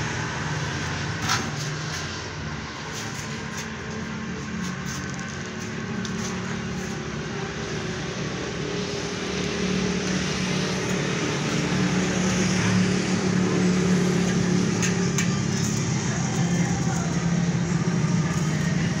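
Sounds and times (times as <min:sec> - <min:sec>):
engine humming: 0:00.0 - 0:19.0.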